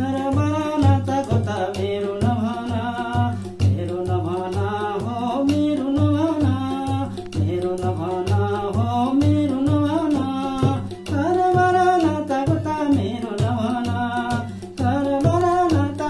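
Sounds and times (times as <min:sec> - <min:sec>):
hand drums beating: 0:00.0 - 0:16.0
man singing folk song: 0:00.0 - 0:16.0.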